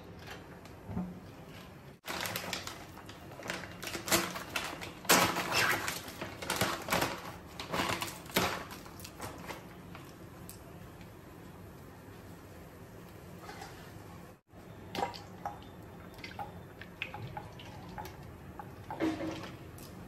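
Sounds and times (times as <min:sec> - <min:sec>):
plastic packaging crinkling and tearing: 0:02.0 - 0:10.6.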